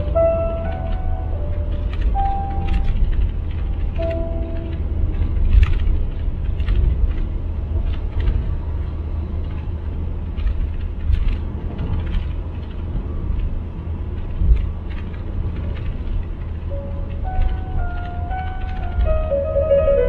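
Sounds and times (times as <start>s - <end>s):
car road noise rumble: 0.0s - 20.0s
small clicks and knocks: 1.7s - 9.7s, 10.3s - 13.6s.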